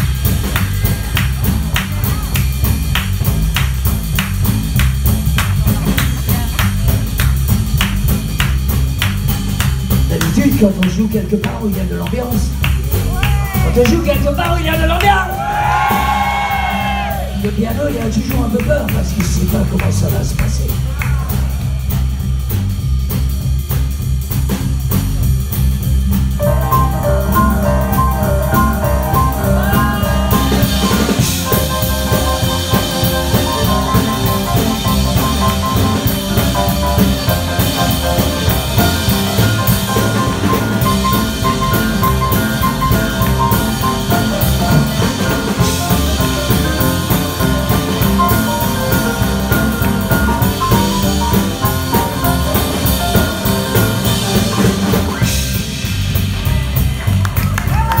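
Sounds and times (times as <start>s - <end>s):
double bass line: 0.0s - 58.0s
drum kit with cymbals: 0.0s - 58.0s
upright piano: 24.2s - 58.0s.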